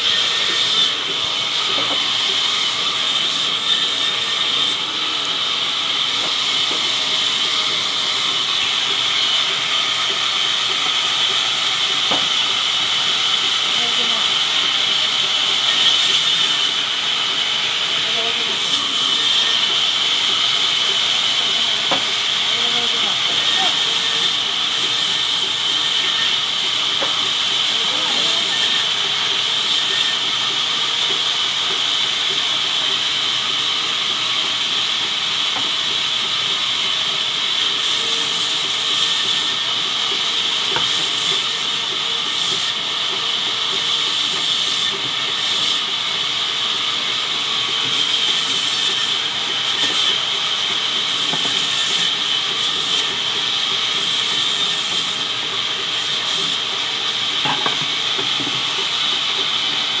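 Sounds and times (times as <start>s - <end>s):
band saw whining: 0.0s - 60.0s
saw blade hissing through wood: 40.4s - 45.9s.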